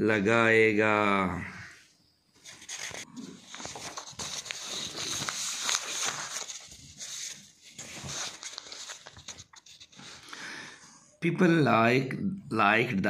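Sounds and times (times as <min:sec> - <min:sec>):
paper pages rustling: 0:02.4 - 0:10.3.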